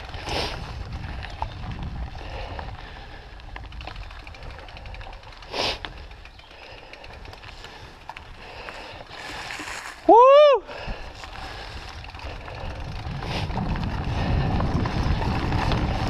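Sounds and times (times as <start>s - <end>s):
wind on microphone: 0.0s - 5.0s, 10.7s - 16.0s
bike tyres rumbling on dirt: 0.0s - 16.0s.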